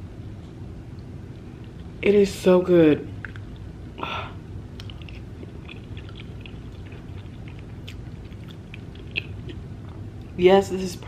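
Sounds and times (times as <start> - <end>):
chewing soft food: 0.2 - 2.0, 3.1 - 10.4
wet mouth clicks and lip smacks: 3.1 - 3.7, 4.7 - 10.0.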